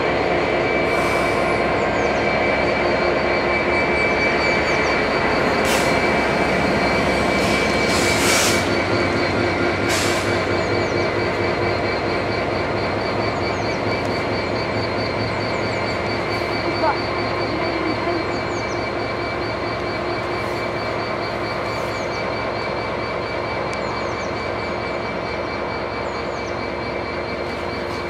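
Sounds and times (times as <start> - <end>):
diesel locomotive rumble and whine: 0.0 - 28.0.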